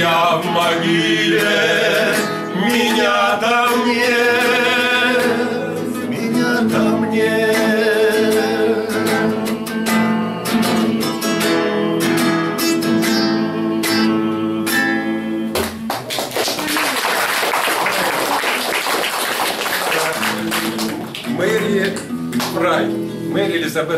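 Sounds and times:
acoustic guitar picking: 0.0s - 15.9s, 20.0s - 23.8s
audience applause: 15.6s - 21.9s.

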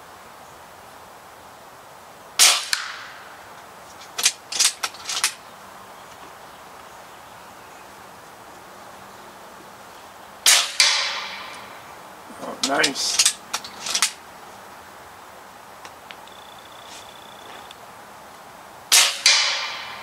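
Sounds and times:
air rifle shots: 2.4s - 3.2s, 10.4s - 11.7s, 18.9s - 20.0s.

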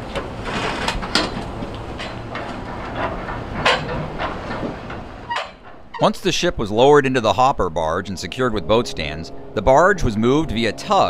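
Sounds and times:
metal clanks and knocks: 0.0s - 6.2s
heavy machinery droning: 6.8s - 11.0s.

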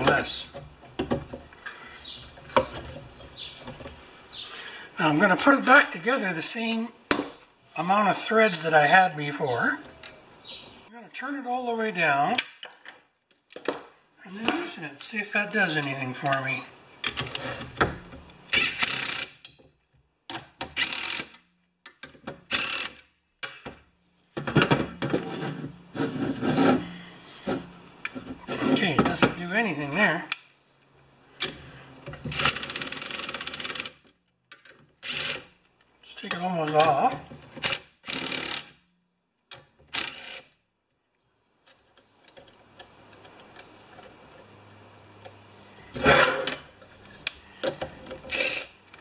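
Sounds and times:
cordless impact driver: 18.5s - 19.4s, 20.7s - 21.4s, 22.5s - 23.1s, 35.0s - 35.5s, 37.6s - 38.8s, 39.9s - 40.5s, 48.3s - 48.7s.

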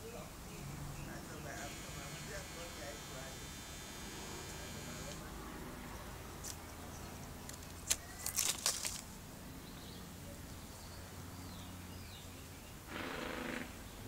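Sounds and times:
dry leaves crackling: 7.3s - 9.3s.

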